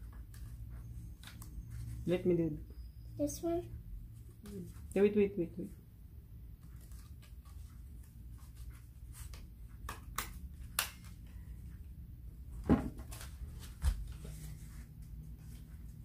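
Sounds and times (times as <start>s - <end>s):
paper strips rustling: 6.6s - 9.9s.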